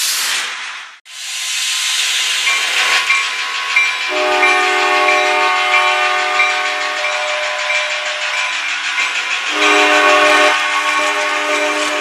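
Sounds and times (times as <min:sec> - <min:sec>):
diesel train passing: 0:00.0 - 0:12.0
crossing bell dinging: 0:02.4 - 0:12.0
train air horn chord: 0:04.1 - 0:08.4, 0:09.5 - 0:12.0.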